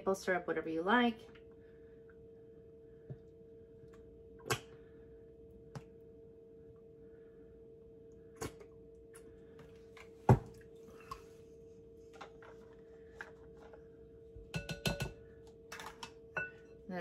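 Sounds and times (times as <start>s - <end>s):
low hum: 0.0s - 17.0s
utensils knocking on mixing bowl: 14.5s - 15.2s.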